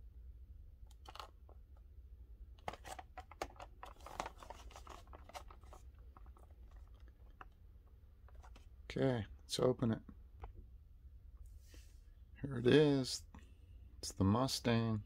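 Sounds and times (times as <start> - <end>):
plastic package crinkling: 2.6 - 7.6.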